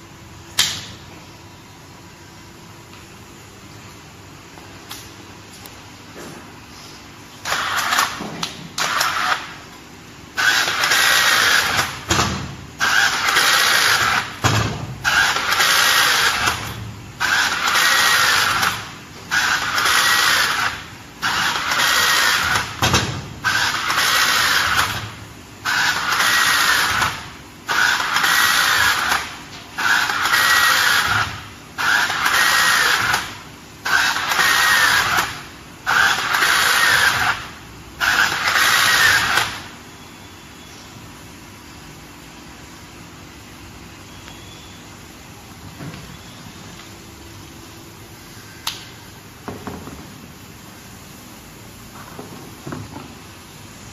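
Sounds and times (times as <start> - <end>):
rebar tying tool motor whir: 7.4 - 9.6, 10.3 - 39.7.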